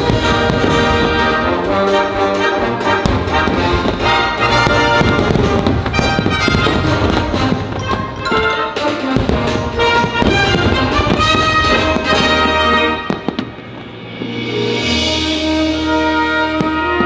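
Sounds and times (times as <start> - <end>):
firework cracks: 0.0 - 14.4
orchestral music with brass: 0.0 - 17.0.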